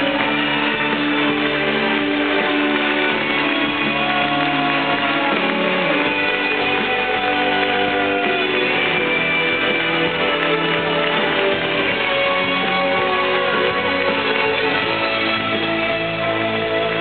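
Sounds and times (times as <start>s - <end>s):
live band playing instrumental: 0.0s - 17.0s.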